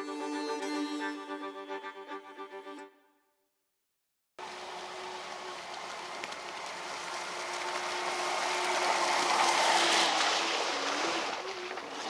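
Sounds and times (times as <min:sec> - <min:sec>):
model jet boat running: 0:04.4 - 0:12.0
water spray: 0:04.4 - 0:12.0.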